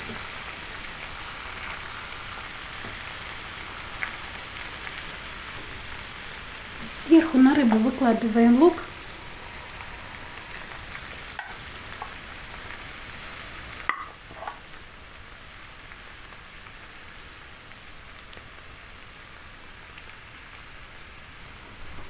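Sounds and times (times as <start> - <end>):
faint hiss: 0.0 - 22.0
wooden spoon scraping a pan: 13.8 - 14.7
spoon knocking against pan: 13.9 - 14.6.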